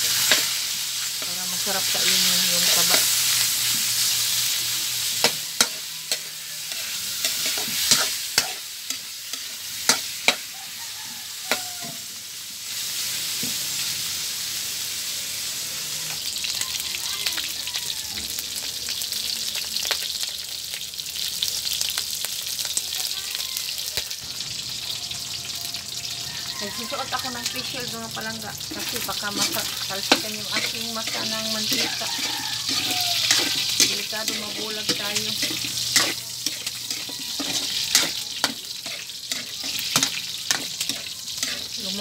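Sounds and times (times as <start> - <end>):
metal spatula scraping a wok: 0.0 - 10.6, 11.4 - 12.0, 26.9 - 42.0
pork fat sizzling in a wok: 0.0 - 42.0.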